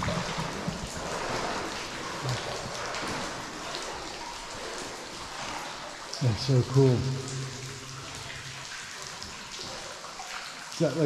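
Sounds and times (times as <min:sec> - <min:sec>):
water dripping in tunnel: 0:00.0 - 0:11.0.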